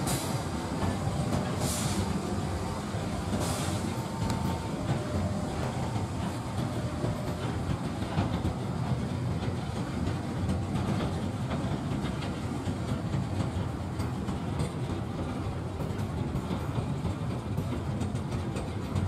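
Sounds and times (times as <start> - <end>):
train wagons rumbling on rails: 0.0 - 19.0.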